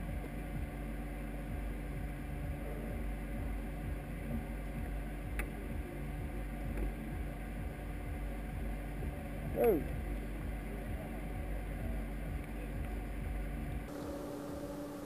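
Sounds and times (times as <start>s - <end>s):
racing car engine idling: 0.0s - 15.0s.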